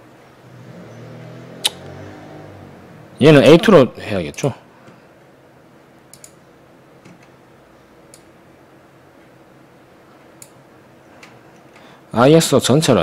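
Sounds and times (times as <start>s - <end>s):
faint background hum: 0.0s - 13.0s
computer mouse clicking: 6.1s - 6.4s.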